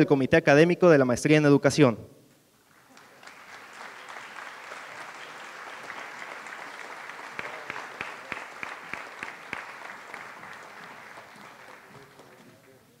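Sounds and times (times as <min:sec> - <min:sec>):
audience applauding: 0:02.6 - 0:13.0
sharp single claps: 0:05.8 - 0:12.5.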